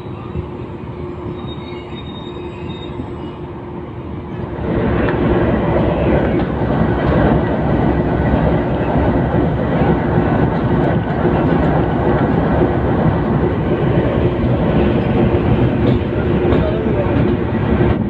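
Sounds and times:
locomotive running: 0:00.0 - 0:18.0
faint high wheel squeal: 0:01.0 - 0:03.5.

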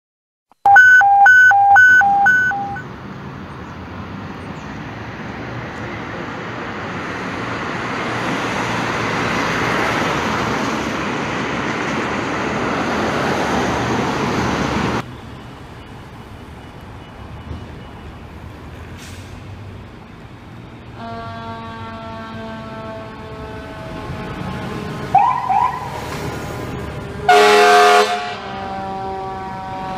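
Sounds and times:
fire engine siren: 0:00.7 - 0:02.8, 0:21.0 - 0:29.9
loud electronic beeps: 0:00.7 - 0:02.8
street traffic noise: 0:00.7 - 0:29.9.

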